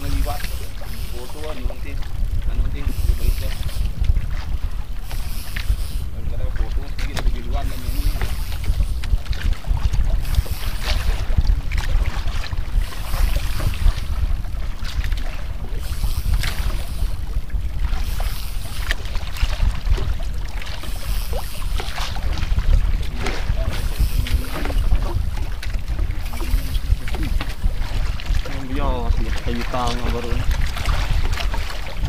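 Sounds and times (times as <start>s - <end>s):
wind rumbling on microphone: 0.0s - 32.0s
water slapping against boat hull: 6.4s - 32.0s.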